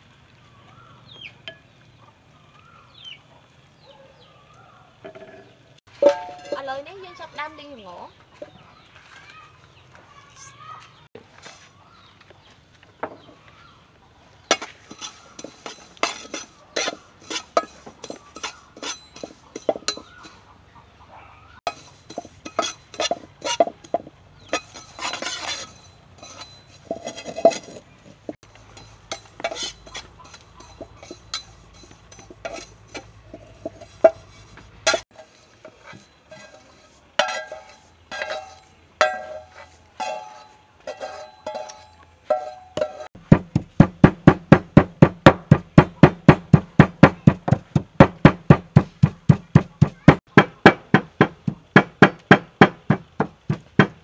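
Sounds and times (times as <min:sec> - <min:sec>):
metal spoon scraping seeds in pan: 0:14.5 - 0:20.4, 0:21.7 - 0:43.2
ringing metal taps: 0:37.2 - 0:43.1.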